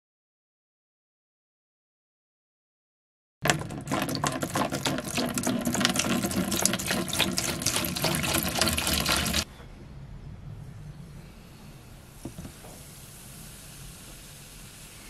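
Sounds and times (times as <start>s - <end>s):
liquid pouring into plastic tub: 3.4s - 9.5s
faint hiss: 9.5s - 15.0s.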